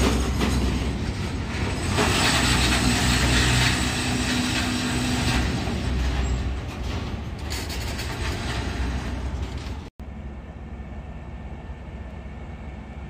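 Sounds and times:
freight train rolling on rails: 0.0 - 13.0.

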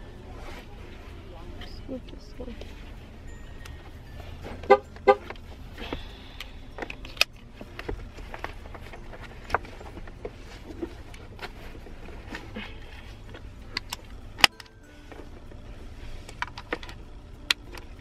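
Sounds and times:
car horn toots: 4.5 - 5.4.

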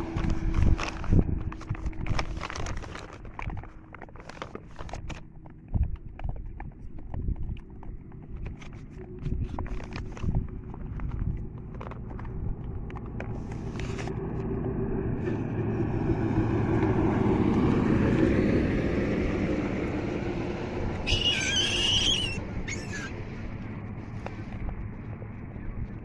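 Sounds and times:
vehicle driving past: 12.0 - 26.0.

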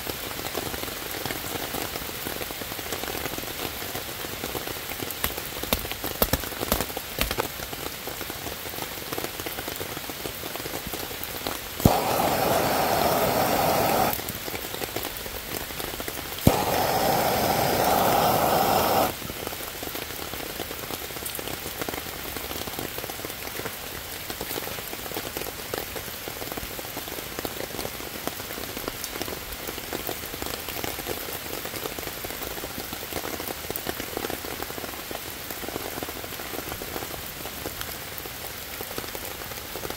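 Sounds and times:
rain pattering on leaves: 0.0 - 39.9
gas torch clicking alight: 11.8 - 14.3, 16.4 - 19.2
gas torch flame hissing: 11.8 - 14.4, 16.4 - 19.2.

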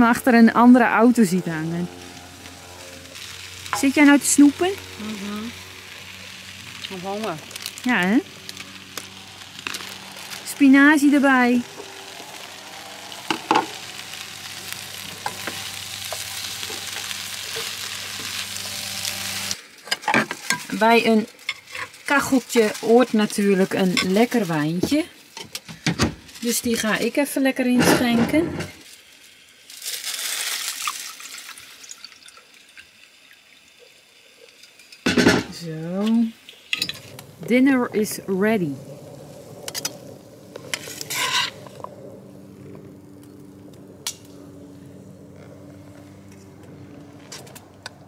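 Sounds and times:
low steady hum: 0.0 - 19.6, 35.3 - 48.0
spinach sizzling in a frying pan: 0.0 - 44.4.

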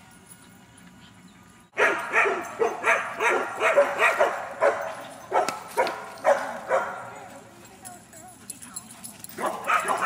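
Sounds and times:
dog barking: 1.8 - 7.1, 9.4 - 10.0.

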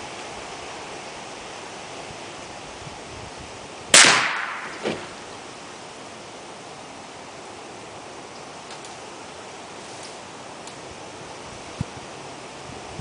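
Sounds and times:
steady background hiss: 0.0 - 13.0
air rifle shot: 3.9 - 5.2.

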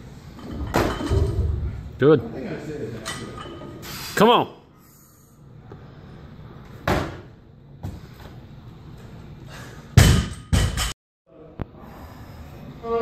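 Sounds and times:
barbell thud: 0.5 - 1.9.

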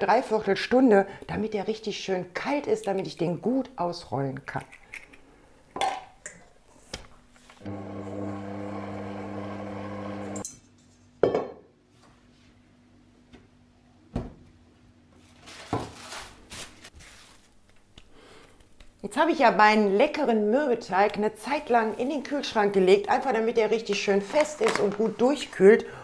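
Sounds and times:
electric mixer running: 7.6 - 10.4.

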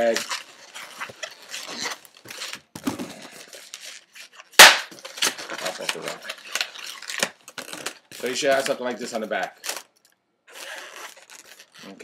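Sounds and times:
balloons squeaking and rubbing: 0.0 - 12.0
balloon loud crack: 4.6 - 5.0.

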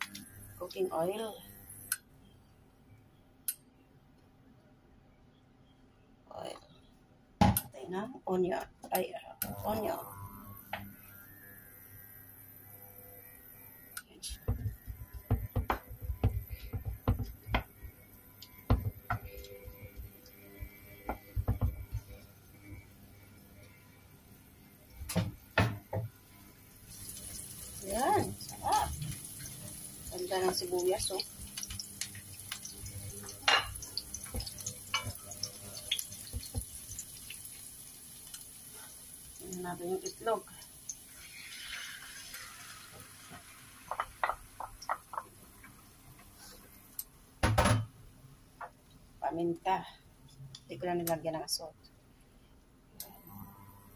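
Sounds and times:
onions frying in oil: 0.0 - 1.7, 9.5 - 47.0
wooden spatula knocking on pan: 14.5 - 17.7, 18.7 - 19.3, 21.1 - 22.1, 43.9 - 45.3
spatula stirring in frying pan: 27.0 - 37.6, 41.1 - 46.7
spatula knocking against pan: 43.9 - 45.3.

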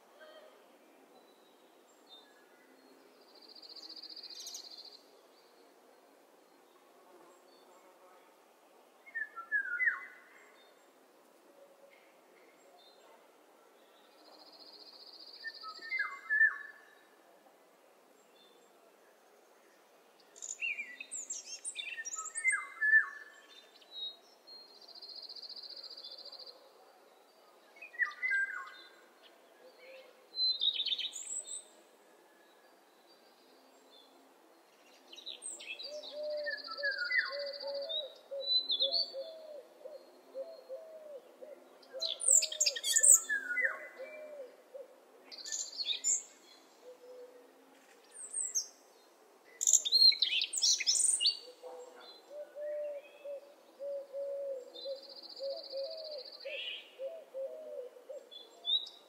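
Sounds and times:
birds singing and chirping: 35.1 - 41.2, 41.8 - 47.3, 49.6 - 59.0.

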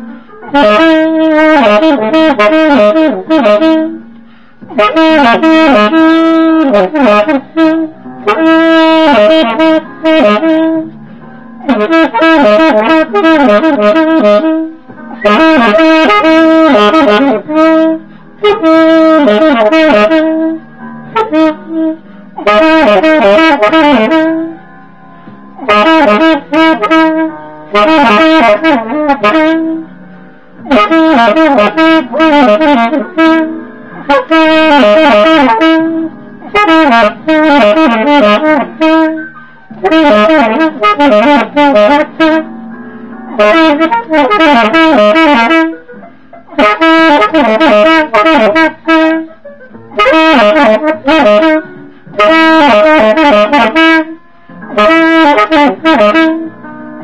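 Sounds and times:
alto saxophone jazz melody: 0.0 - 57.0
player breathing: 4.2 - 4.7.

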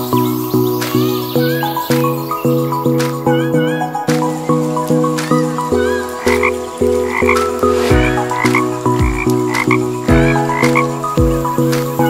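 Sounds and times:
music with a steady beat: 0.0 - 12.0
croak-like calls: 5.4 - 11.0
low kick drum: 7.9 - 8.2, 9.0 - 9.2, 10.1 - 10.4, 11.2 - 11.4.

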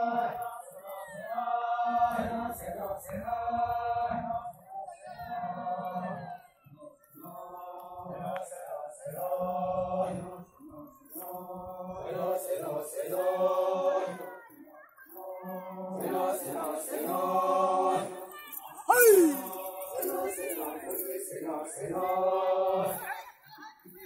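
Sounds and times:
men singing a chant together: 0.0 - 6.5, 7.2 - 14.4, 15.1 - 18.3, 18.9 - 23.2
loud shout sliding down in pitch: 18.9 - 19.5.

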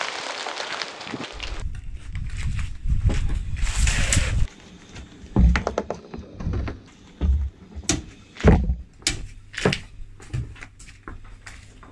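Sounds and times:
ice lollies cracking under tyre: 0.0 - 1.6.

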